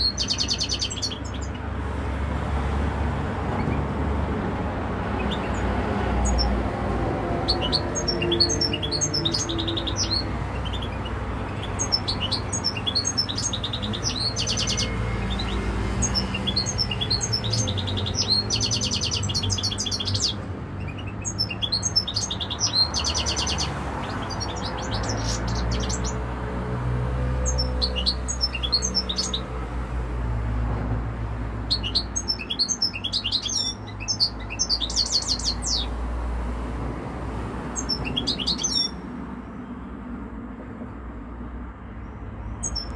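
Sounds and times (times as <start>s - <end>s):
goldfinch singing: 0.0s - 1.6s, 5.1s - 6.6s, 7.3s - 26.2s, 27.5s - 29.5s, 31.7s - 35.9s, 37.8s - 39.0s.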